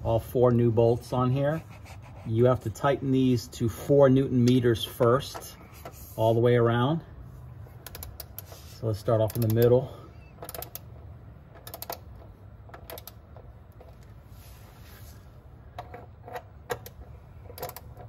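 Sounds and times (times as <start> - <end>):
torque wrench ratcheting clicks: 7.8 - 8.5, 9.2 - 9.8, 10.4 - 10.9, 11.5 - 13.4, 15.9 - 18.0.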